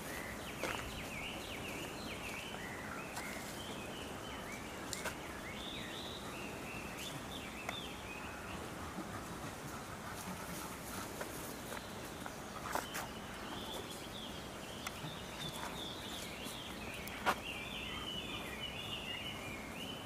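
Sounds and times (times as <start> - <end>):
outdoor background noise: 0.0 - 20.0
small birds chirping: 0.0 - 20.0.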